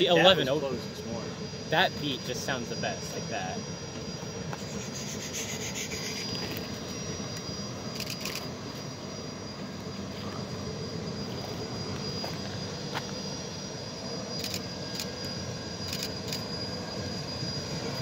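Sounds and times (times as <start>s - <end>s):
distant steam locomotive exhaust: 4.4s - 7.4s.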